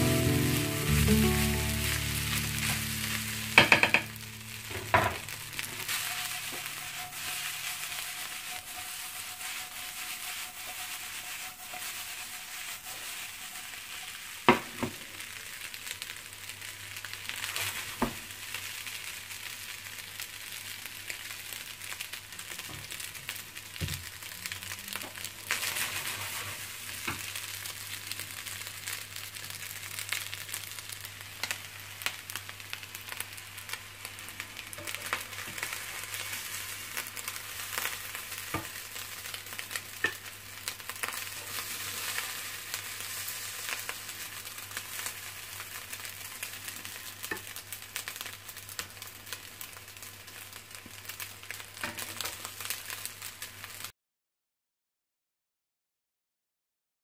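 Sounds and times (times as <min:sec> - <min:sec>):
rice sizzling in frying pan: 0:00.0 - 0:53.9
spatula knocking against pan: 0:03.6 - 0:04.1.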